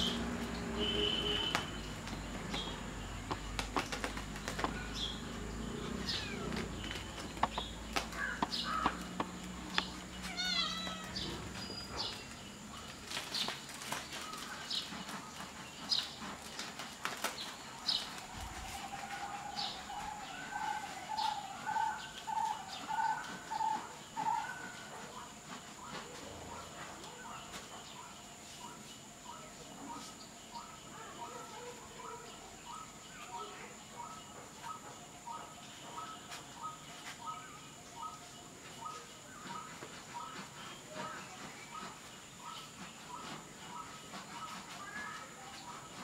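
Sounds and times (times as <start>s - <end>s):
high chirping animal calls: 4.6s - 12.2s
paws scraping on plastic sack: 6.1s - 21.4s.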